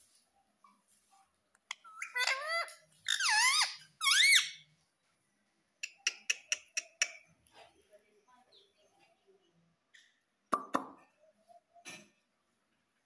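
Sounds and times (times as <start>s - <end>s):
parakeet squeaky calls: 1.7s - 4.7s.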